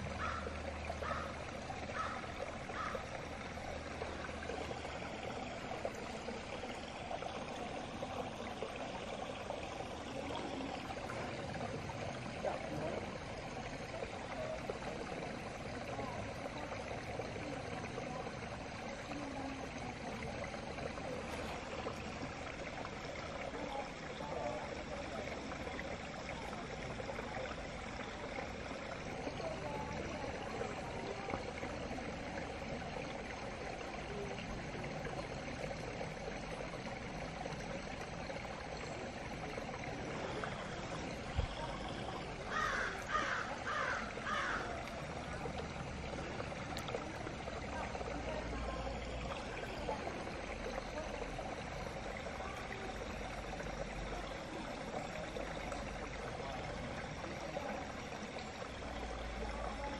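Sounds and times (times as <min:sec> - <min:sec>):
stream running: 0:00.0 - 0:59.9
bird calling: 0:00.2 - 0:00.4, 0:01.0 - 0:03.0, 0:42.5 - 0:44.7.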